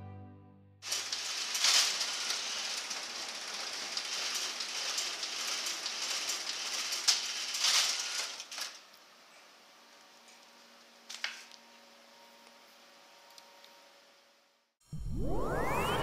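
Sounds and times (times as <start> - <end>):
copier-printer whirring: 0.9 - 8.8.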